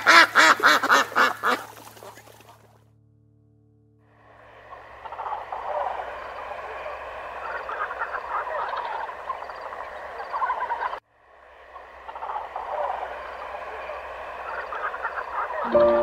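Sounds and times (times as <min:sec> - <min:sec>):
frogs croaking: 0:04.2 - 0:16.0.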